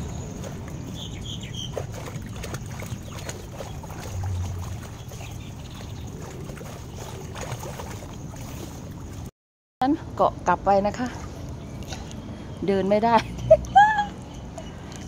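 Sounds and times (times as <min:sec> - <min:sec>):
bird chirps: 0:00.0 - 0:01.8
pool water sloshing and splashing: 0:00.0 - 0:09.3, 0:10.8 - 0:12.2.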